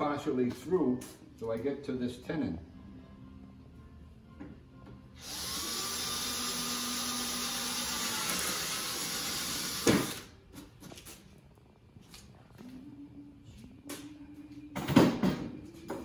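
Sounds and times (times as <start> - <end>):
cordless drill boring wood: 5.2 - 10.3.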